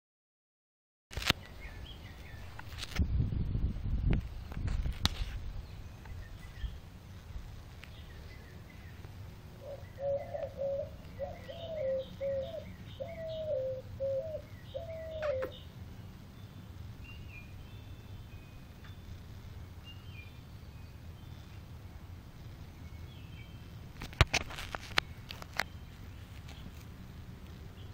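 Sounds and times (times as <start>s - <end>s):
bird calling low notes: 9.6s - 15.7s
faint high bird chirps: 9.7s - 15.7s.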